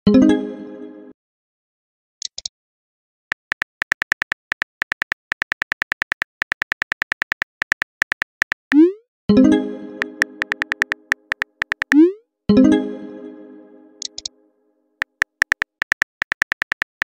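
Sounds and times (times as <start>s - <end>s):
keyboard typing clicks: 3.3s - 9.0s, 10.0s - 12.1s, 14.0s - 14.3s, 15.0s - 17.0s.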